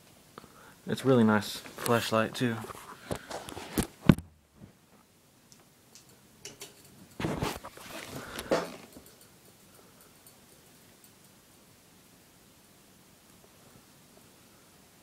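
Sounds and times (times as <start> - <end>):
rustling handling noise: 1.4 - 4.8, 6.6 - 9.2
faint ticks: 8.2 - 11.6.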